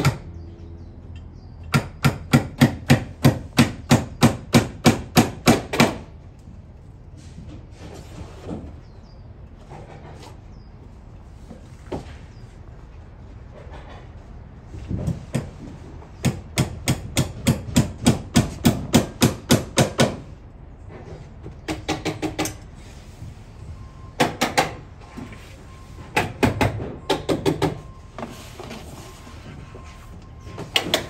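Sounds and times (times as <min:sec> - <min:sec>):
hammer striking fasteners: 0:01.6 - 0:06.1, 0:16.2 - 0:20.3, 0:21.6 - 0:22.7, 0:24.2 - 0:24.8, 0:26.1 - 0:27.9.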